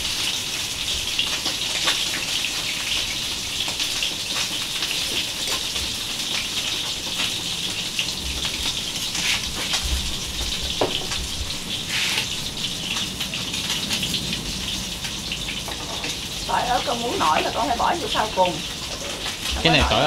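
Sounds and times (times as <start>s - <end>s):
fish frying in oil: 0.0s - 20.0s
knife scraping chopping board: 11.9s - 12.3s.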